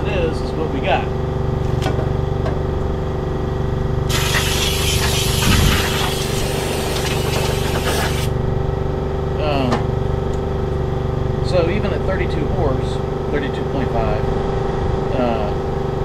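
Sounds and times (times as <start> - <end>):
air compressor drone: 0.0 - 16.0
loud air hiss: 4.1 - 8.3.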